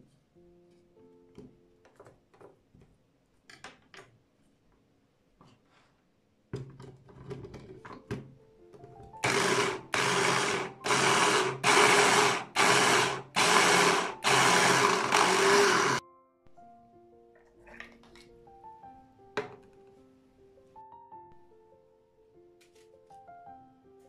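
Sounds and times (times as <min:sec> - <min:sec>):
hand blender chopper whirring: 0:09.2 - 0:16.0.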